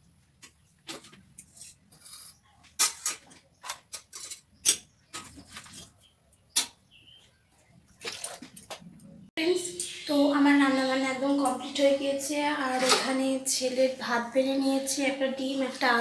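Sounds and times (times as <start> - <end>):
utensils clinking on steel dishes: 12.7 - 13.3.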